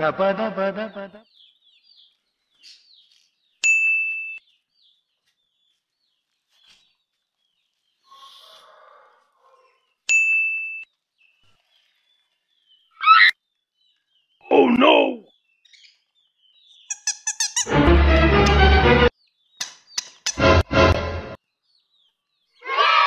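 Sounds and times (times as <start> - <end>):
chicks peeping: 0.9 - 3.6, 11.1 - 14.4, 15.2 - 17.7, 21.4 - 23.0
soft rustle: 5.0 - 8.6.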